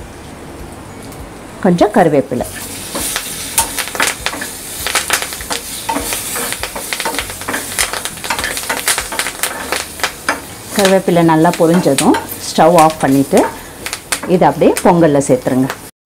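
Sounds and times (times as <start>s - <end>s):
leaves sizzling and popping in oil: 2.3s - 15.9s
spoon stirring in pan: 2.6s - 14.9s.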